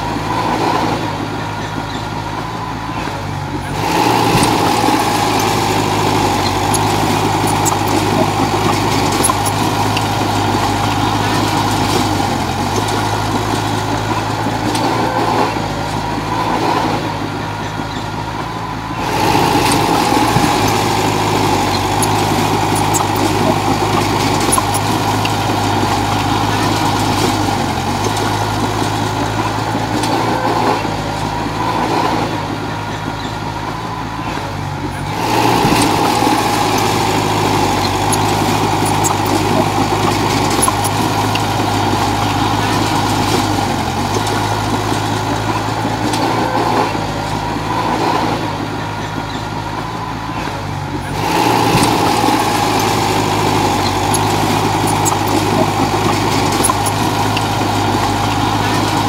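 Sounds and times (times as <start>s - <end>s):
bulldozer diesel engine: 0.0s - 59.0s.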